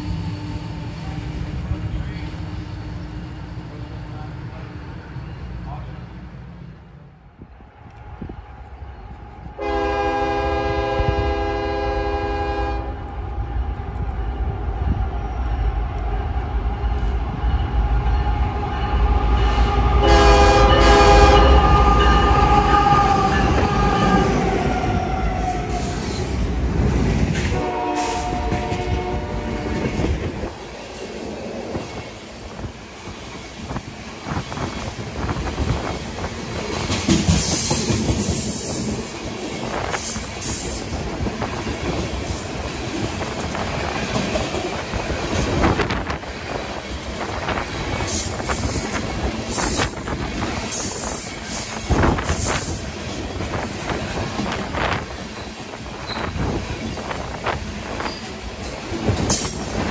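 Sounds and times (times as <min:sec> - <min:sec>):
deep locomotive rumble: 0:00.0 - 0:59.9
locomotive air horn blasts: 0:09.5 - 0:13.0, 0:19.4 - 0:26.0, 0:27.5 - 0:30.2
train wheels clattering over rail joints: 0:26.1 - 0:59.9.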